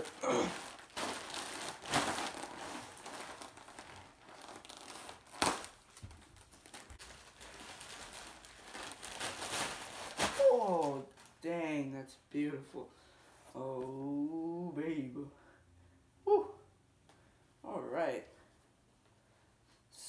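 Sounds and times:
plastic bag crinkling: 0.0s - 11.5s.

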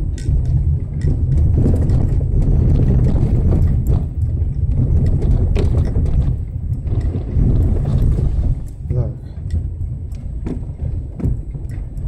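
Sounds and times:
engine and tyres rumbling: 0.0s - 12.0s.

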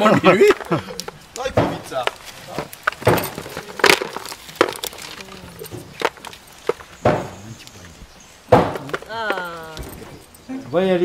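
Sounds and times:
bean pods cracking open: 0.2s - 8.0s
beans clicking into plastic bowls: 0.4s - 6.9s.

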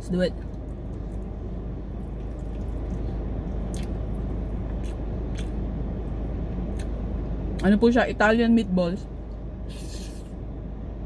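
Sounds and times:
car engine and air conditioning hum: 0.0s - 11.0s
chewing and wet mouth sounds: 0.3s - 7.0s.

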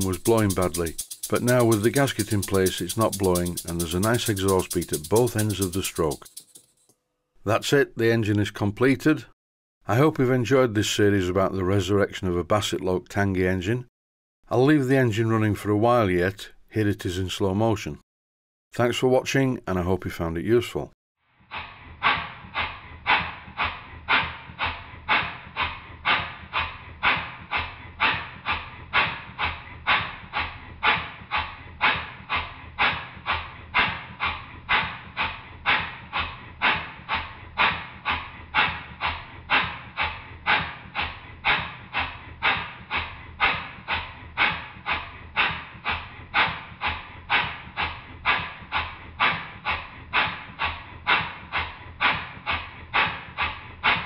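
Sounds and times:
model steam engine exhaust beats: 0.0s - 6.7s, 21.5s - 54.0s.

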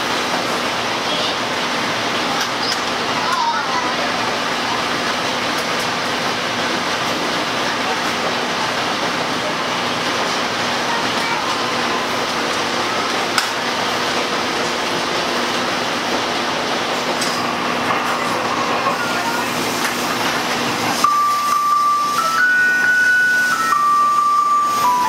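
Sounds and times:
train wheels rumbling: 0.0s - 25.0s
chime melody over speaker: 21.0s - 25.0s.

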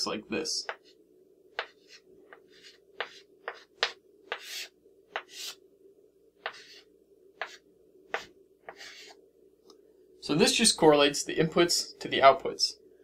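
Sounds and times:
chalk tapping on blackboard: 0.6s - 0.9s, 1.6s - 5.6s, 6.4s - 6.8s, 7.4s - 9.1s
chalk scratching on blackboard: 0.6s - 1.0s, 1.6s - 5.6s, 6.4s - 9.2s.

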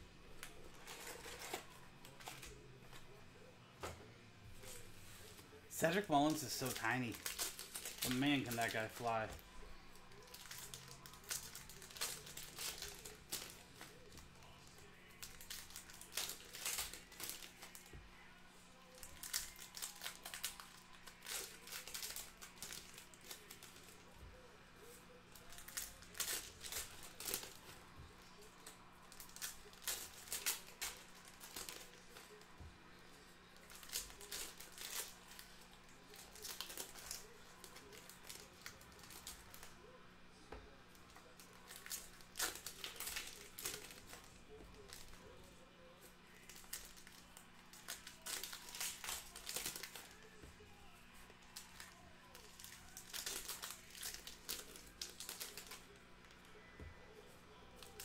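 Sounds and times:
card pack wrappers tearing: 0.4s - 2.6s, 4.6s - 18.0s, 18.9s - 24.1s, 24.9s - 32.6s, 33.5s - 39.8s, 40.9s - 45.3s, 46.1s - 50.4s, 51.3s - 56.4s, 57.8s - 58.0s.

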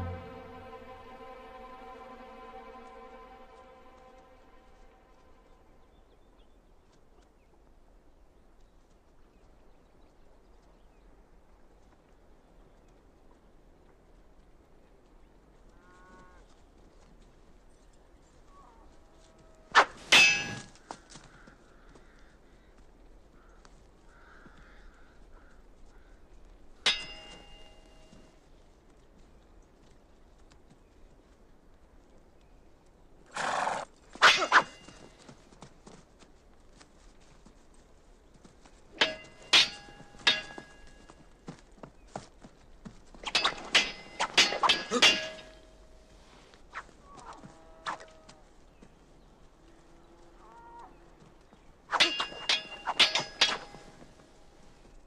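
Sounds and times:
sword blades clashing: 19.8s - 20.7s, 26.9s - 27.7s, 34.2s - 35.0s, 39.0s - 41.0s, 43.2s - 45.7s, 51.9s - 54.2s.

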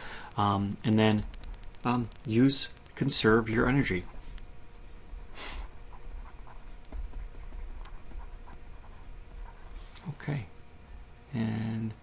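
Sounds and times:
breath: 0.0s - 0.4s
stylus scratching on pen tablet: 5.6s - 9.9s.

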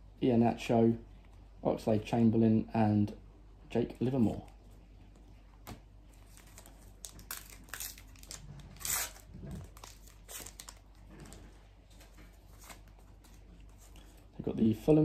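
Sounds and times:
foil wrapper tearing and crinkling: 6.3s - 11.0s.

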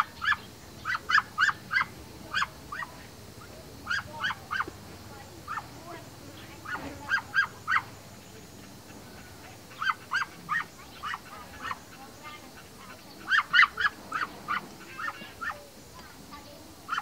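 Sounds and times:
ducks quacking: 0.0s - 4.8s, 6.4s - 15.7s.

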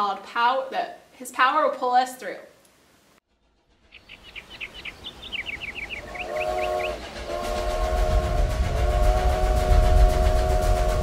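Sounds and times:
low rumble: 3.3s - 11.0s
steam locomotive whistle: 5.2s - 11.0s.

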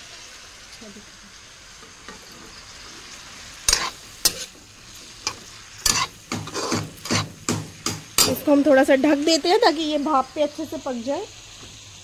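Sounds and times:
vegetables sizzling in oil: 0.0s - 12.0s
metal spoon scraping pan: 3.7s - 4.6s, 5.2s - 8.5s.

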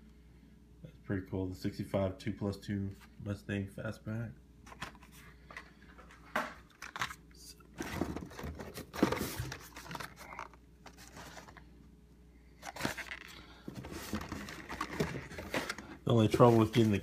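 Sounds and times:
blister packs crinkling on cardboard: 12.6s - 17.0s.

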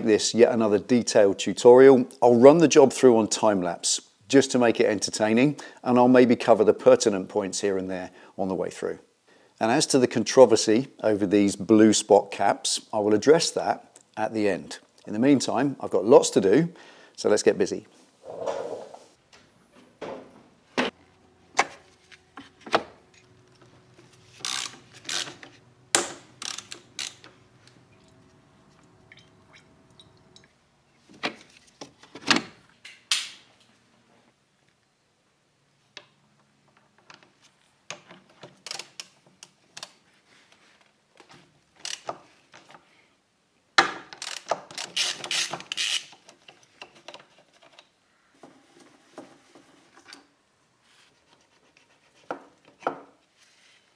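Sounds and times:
hand tools clinking and ratcheting: 24.4s - 25.5s, 26.4s - 27.3s.

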